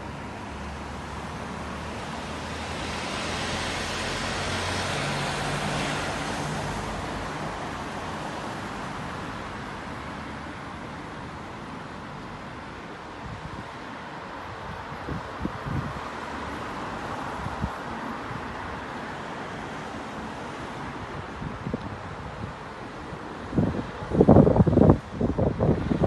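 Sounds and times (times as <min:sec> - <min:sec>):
van tyres hissing on wet road: 0:00.0 - 0:10.5
distant traffic: 0:00.0 - 0:26.0.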